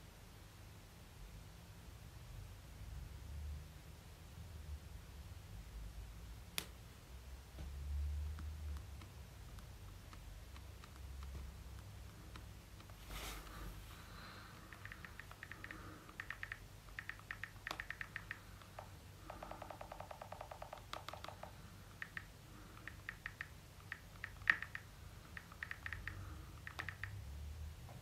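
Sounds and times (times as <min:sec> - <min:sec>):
touchscreen keyboard typing clicks: 0:08.4 - 0:13.0, 0:14.2 - 0:27.2.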